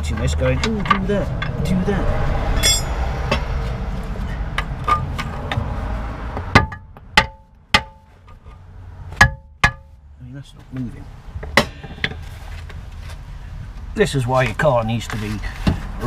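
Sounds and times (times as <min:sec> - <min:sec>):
rumbling rush: 0:00.0 - 0:07.0
hammer striking steel: 0:02.6 - 0:03.4, 0:06.5 - 0:08.1, 0:09.2 - 0:09.9.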